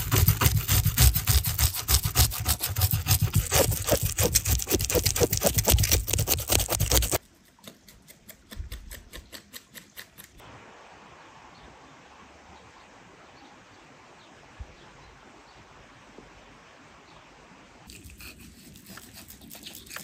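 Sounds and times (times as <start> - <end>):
knife scraping fish scales: 0.0 - 10.4, 17.9 - 20.0
faint steady hush: 10.4 - 20.0.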